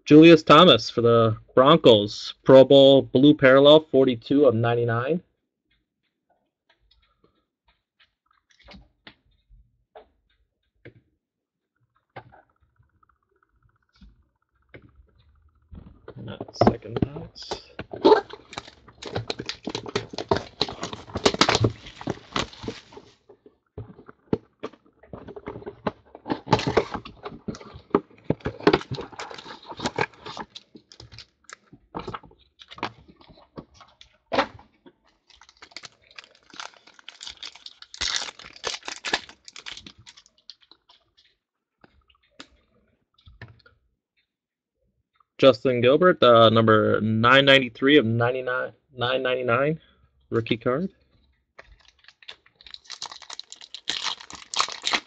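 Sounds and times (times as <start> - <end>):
plastic and foil crinkling: 17.4 - 24.3, 25.2 - 34.2, 35.0 - 41.3, 51.6 - 55.0.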